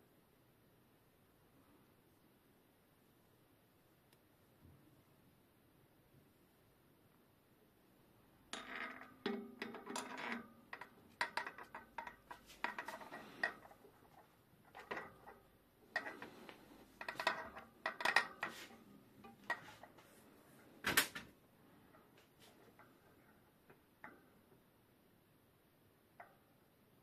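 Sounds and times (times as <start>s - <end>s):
metal hub parts clinking: 8.6s - 20.0s.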